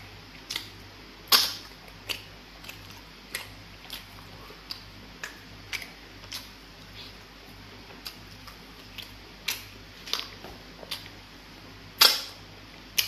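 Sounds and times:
wet mouth smacks while chewing: 1.3s - 7.2s.

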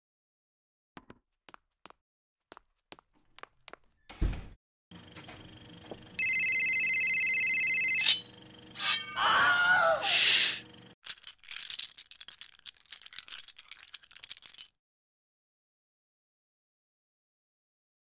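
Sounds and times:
crackling clicks and rattles: 11.0s - 14.8s.

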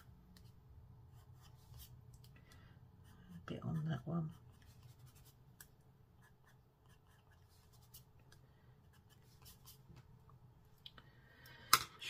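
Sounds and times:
low steady hum: 0.0s - 12.0s
pencil scratching on card: 3.0s - 5.4s, 6.2s - 8.1s, 8.8s - 9.8s.

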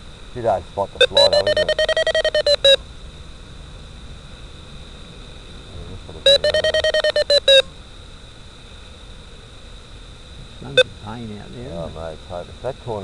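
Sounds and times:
faint steady high whine: 0.0s - 13.0s
variometer short beeps: 1.0s - 2.8s, 6.3s - 7.7s.

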